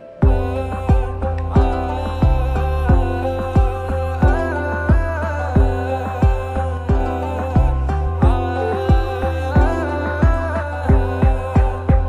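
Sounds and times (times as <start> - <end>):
held chords: 0.0 - 12.0
deep drum hits: 0.2 - 12.0.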